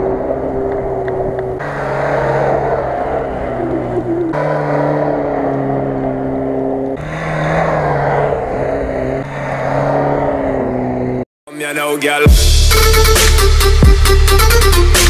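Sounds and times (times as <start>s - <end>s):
bass and synth music: 11.6s - 15.0s.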